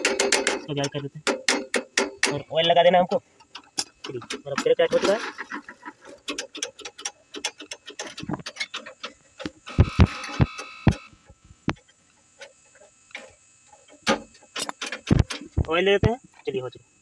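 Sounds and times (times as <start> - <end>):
bicycle clicking and ticking: 0.0 - 2.4, 6.2 - 16.2.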